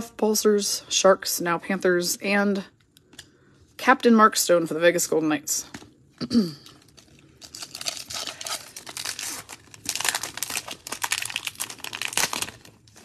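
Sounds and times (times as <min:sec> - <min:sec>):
foil wrapper tearing and crinkling: 0:06.8 - 0:13.0.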